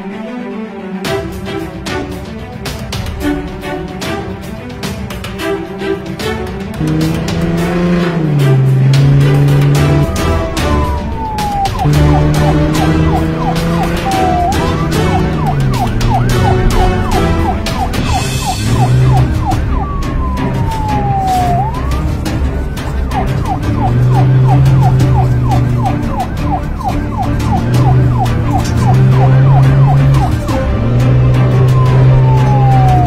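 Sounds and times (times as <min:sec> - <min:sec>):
background music with steady beat: 0:00.0 - 0:33.0
police siren yelping and wailing: 0:06.8 - 0:33.0.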